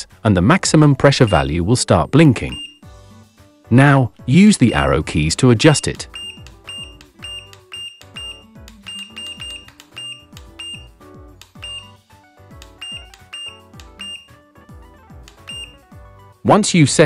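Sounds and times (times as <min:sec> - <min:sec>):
background music: 0:00.0 - 0:17.0
short high electronic beeps: 0:05.8 - 0:11.0, 0:11.6 - 0:12.0, 0:12.8 - 0:14.4, 0:15.4 - 0:15.8.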